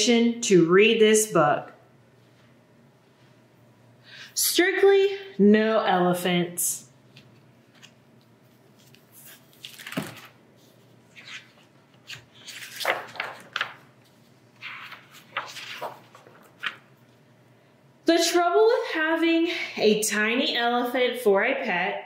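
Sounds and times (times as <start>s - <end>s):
book pages turning: 7.1s - 17.2s.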